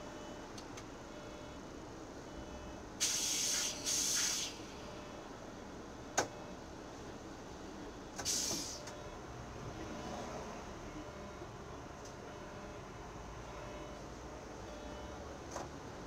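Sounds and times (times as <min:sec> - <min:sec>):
low bus cabin rumble: 0:00.0 - 0:16.0
bus air brakes hissing: 0:03.0 - 0:04.7, 0:08.2 - 0:08.9.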